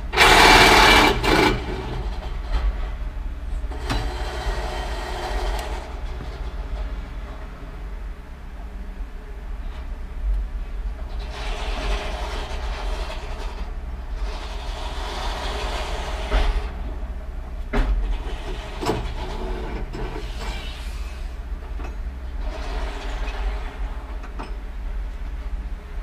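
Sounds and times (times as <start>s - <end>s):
mechanical clatter: 0.0s - 7.5s, 11.0s - 20.8s
diesel engine rumble: 0.0s - 26.0s.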